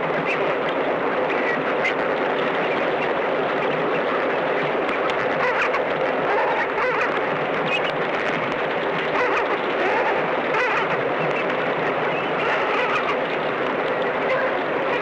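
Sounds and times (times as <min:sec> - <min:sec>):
water splashing: 0:00.0 - 0:15.0
flamingos honking: 0:05.2 - 0:07.9, 0:09.0 - 0:15.0.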